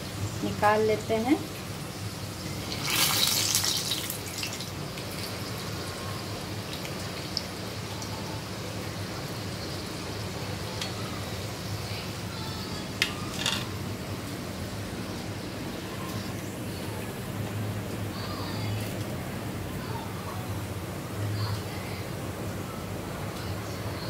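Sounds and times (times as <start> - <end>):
food sizzling in hot oil: 0.0 - 14.8.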